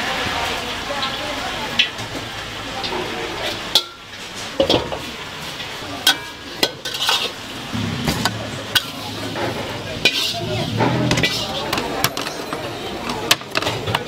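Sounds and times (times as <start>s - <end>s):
hot oil sizzling: 0.0s - 14.0s
ladle scraping a steel wok: 2.8s - 14.0s.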